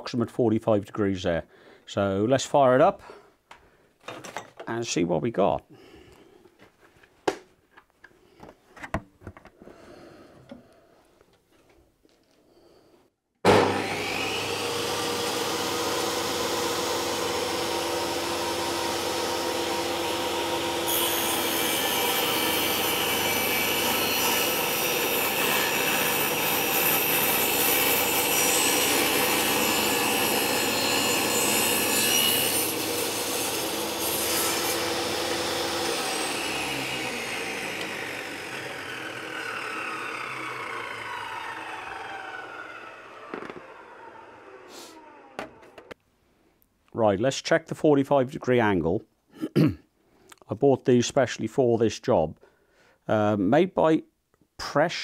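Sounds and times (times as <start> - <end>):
table saw running: 13.4 - 45.9
saw blade winding down: 13.5 - 45.4
saw blade cutting wood: 13.5 - 45.6.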